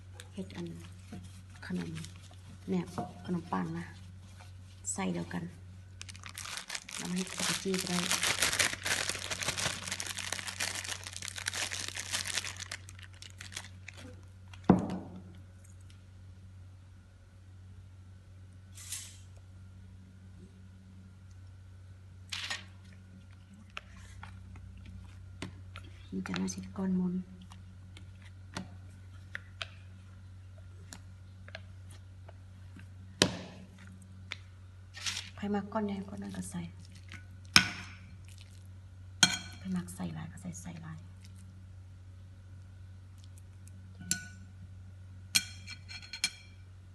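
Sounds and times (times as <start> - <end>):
plastic bag crinkling: 6.0 - 14.7.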